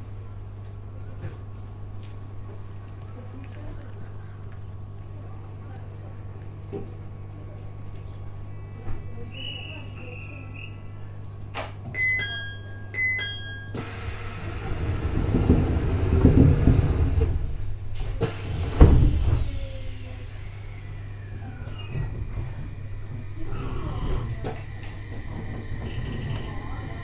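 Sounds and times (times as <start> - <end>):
train electrical hum: 0.0 - 27.0
two-note door chime: 12.0 - 13.8
sliding doors shutting with thump: 13.8 - 27.0.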